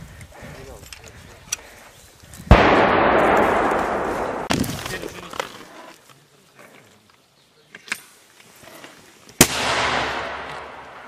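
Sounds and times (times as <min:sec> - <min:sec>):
mortar firing with rolling echo: 0:02.5 - 0:04.9, 0:09.4 - 0:11.0.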